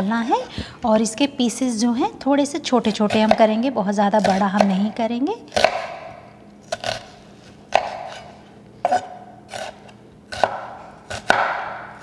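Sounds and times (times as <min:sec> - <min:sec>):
knife chopping onion on board: 0:04.2 - 0:04.9, 0:05.5 - 0:06.1, 0:07.7 - 0:12.0.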